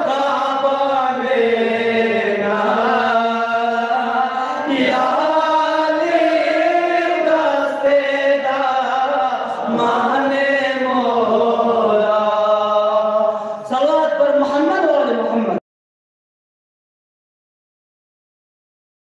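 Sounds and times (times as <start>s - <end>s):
unaccompanied chanted singing: 0.0s - 13.6s.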